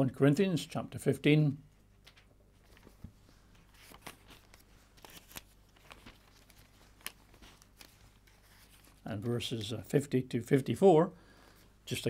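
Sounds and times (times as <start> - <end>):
paper pages turning: 2.0 - 9.7.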